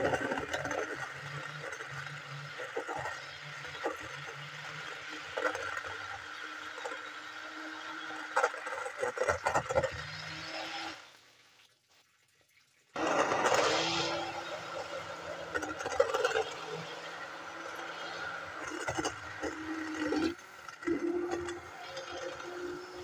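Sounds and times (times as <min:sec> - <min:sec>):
stick blender motor hum: 0:00.0 - 0:11.0, 0:13.0 - 0:23.0
liquid churning and splashing: 0:08.3 - 0:10.9.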